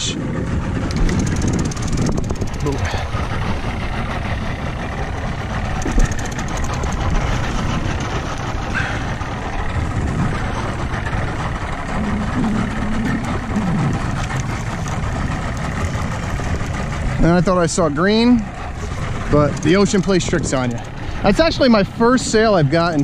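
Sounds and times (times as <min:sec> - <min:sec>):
boat engine idling: 0:00.0 - 0:23.0
water noise: 0:00.0 - 0:23.0
wind: 0:00.0 - 0:23.0.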